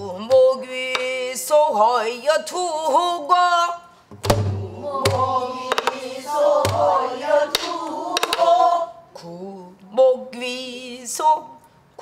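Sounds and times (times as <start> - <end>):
deep drum thumps: 4.1 - 5.5, 6.6 - 7.0.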